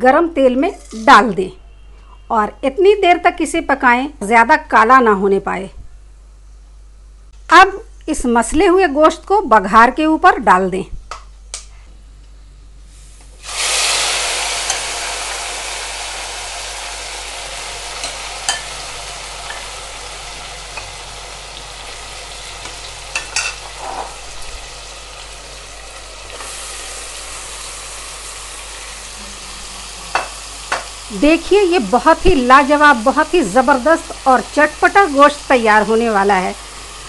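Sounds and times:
spatula scraping a pot: 0.6 - 1.1
meat sizzling in hot oil: 13.4 - 37.0.

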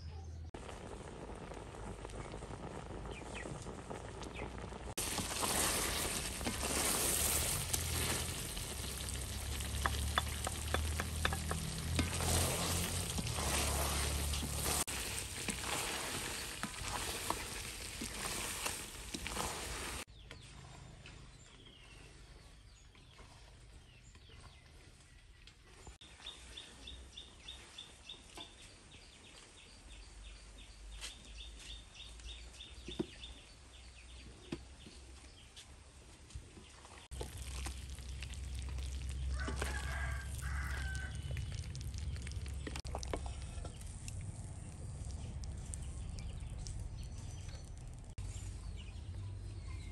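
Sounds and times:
food sizzling in a wok: 0.6 - 20.1
rooster crowing: 39.3 - 41.4.

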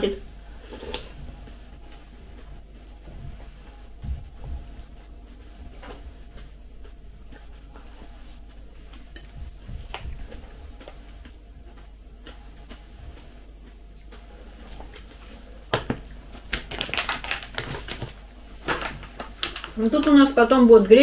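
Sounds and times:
food packet crinkling: 15.9 - 20.4.

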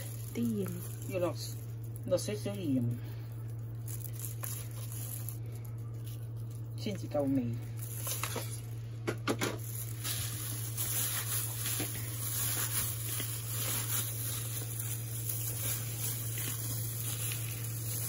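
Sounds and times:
plastic glove rustling: 0.0 - 18.0
steady low hum: 0.0 - 18.0
minced meat squishing: 9.7 - 18.0.

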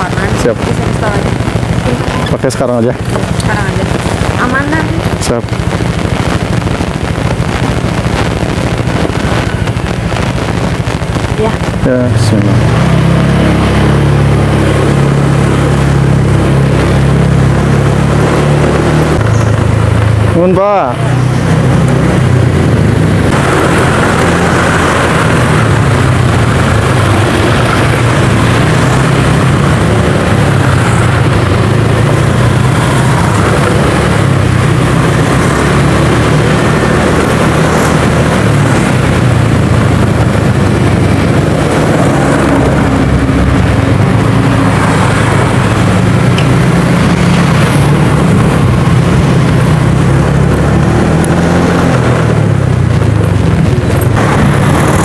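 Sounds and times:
scooter engine and road noise: 0.0 - 55.0.

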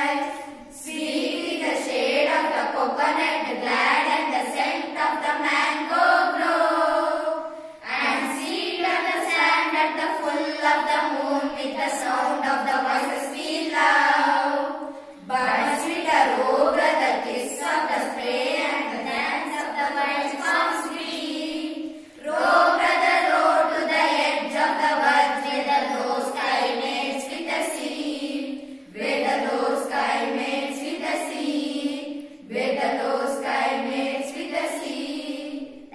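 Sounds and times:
girls singing in unison: 0.0 - 35.9.

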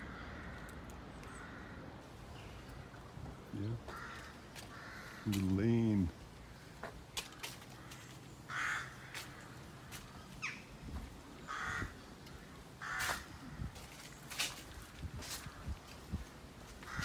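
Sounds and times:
crow cawing: 0.0 - 3.1, 3.8 - 5.5, 6.4 - 10.6, 11.4 - 15.8, 16.8 - 17.0.

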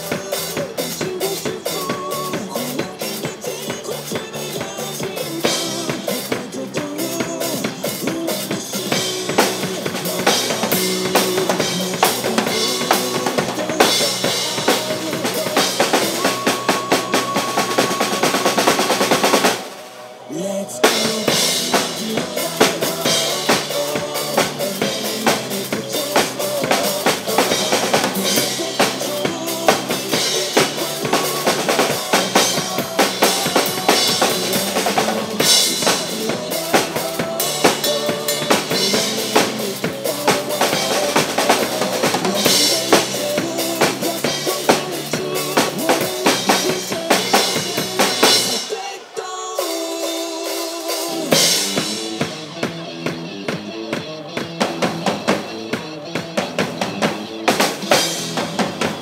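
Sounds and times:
acoustic drum kit playing: 0.0 - 19.8, 20.8 - 48.9, 49.6 - 59.0
pop-rock backing track: 0.0 - 59.0.

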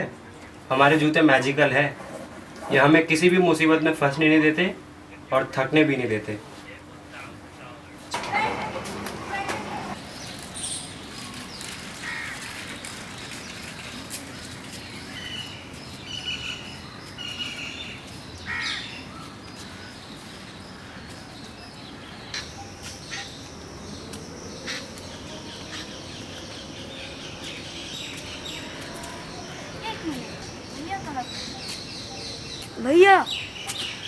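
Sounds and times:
outdoor background hiss: 0.0 - 34.0
birds calling: 7.8 - 34.0.

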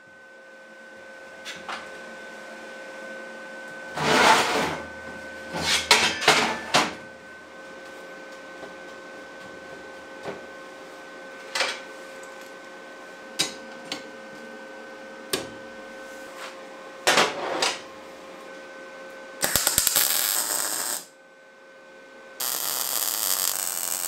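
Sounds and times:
steady hum: 19.3 - 21.4, 22.4 - 24.0
welding crackling hiss: 19.4 - 21.1, 22.4 - 24.0.

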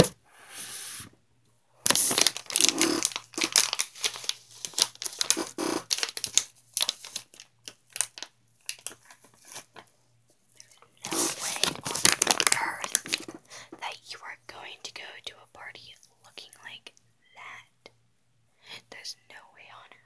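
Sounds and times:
crinkling and crackling: 1.9 - 9.9, 10.5 - 13.9.

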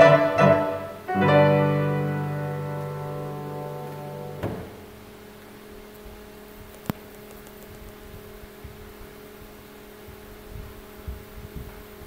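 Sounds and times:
electrical hum: 0.0 - 12.0
soft low knocks: 2.6 - 5.0.

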